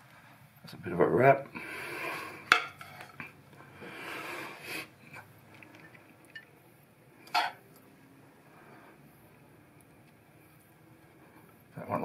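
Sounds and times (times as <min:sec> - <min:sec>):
breathy sniff: 0:03.8 - 0:05.0.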